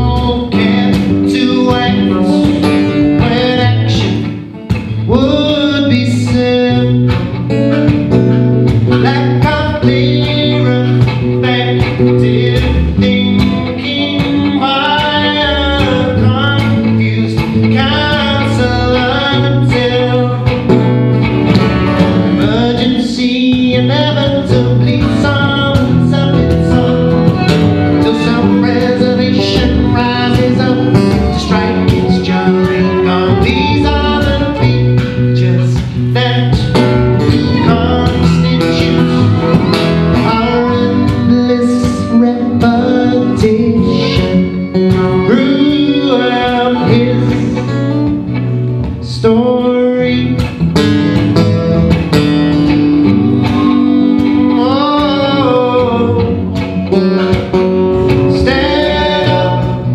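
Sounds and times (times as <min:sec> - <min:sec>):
acoustic guitar strumming: 0:00.0 - 0:59.9
man singing: 0:00.0 - 0:59.9.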